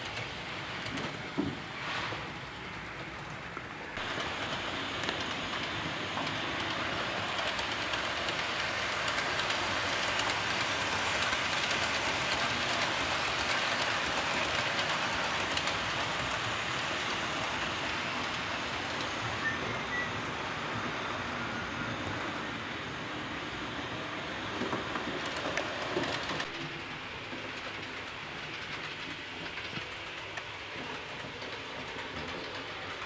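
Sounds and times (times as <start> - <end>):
model train wheels rattling on rail: 4.0 - 19.0.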